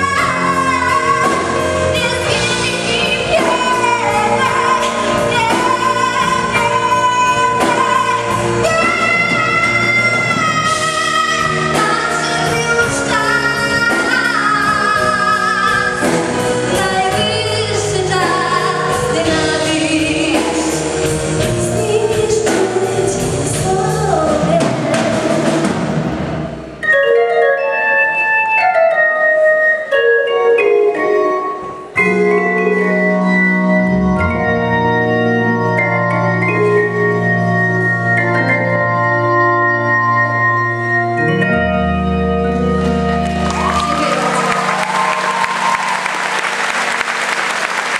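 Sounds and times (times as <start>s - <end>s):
organ keyboard melody: 0.0s - 47.9s
audience applause: 43.2s - 47.9s.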